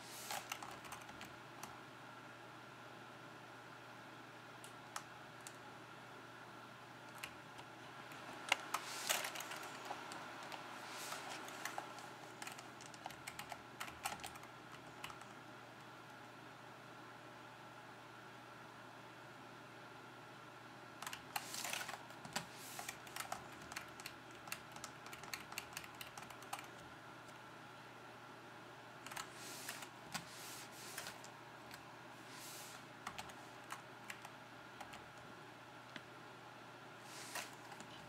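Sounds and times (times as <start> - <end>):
keyboard keys clicking: 7.1 - 15.3, 21.0 - 26.8.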